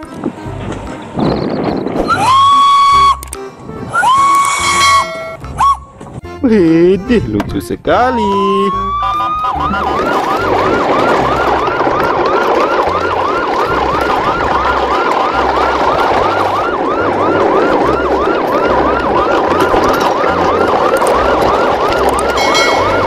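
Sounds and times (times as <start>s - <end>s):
electronic siren wailing: 1.3s - 3.2s, 3.9s - 5.9s, 8.0s - 23.0s
high beep: 22.4s - 23.0s.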